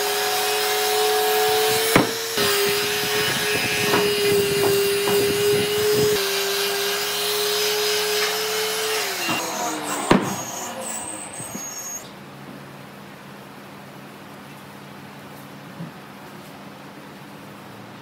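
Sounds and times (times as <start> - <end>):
electric palm sander running: 0.0 - 10.8
sharp knock: 1.9 - 2.2.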